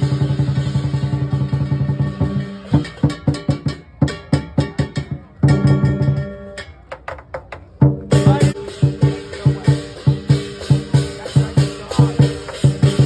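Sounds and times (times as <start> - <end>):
hand cymbals crashing: 0.0 - 6.8, 8.1 - 13.0
large drum beating: 0.0 - 13.0.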